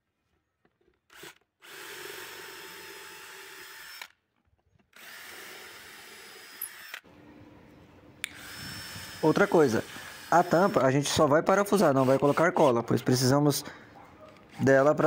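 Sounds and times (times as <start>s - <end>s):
cordless drill driving screws: 1.0s - 4.2s, 4.8s - 7.0s, 8.2s - 13.3s.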